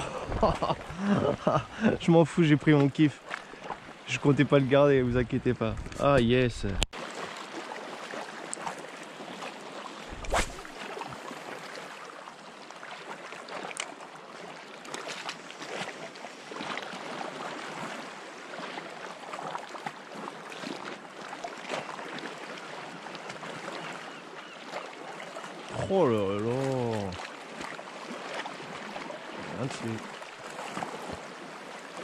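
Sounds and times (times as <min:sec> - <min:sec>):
water lapping on rocks: 0:06.6 - 0:12.1, 0:12.8 - 0:24.0
small splashes: 0:07.0 - 0:12.2, 0:26.5 - 0:32.0.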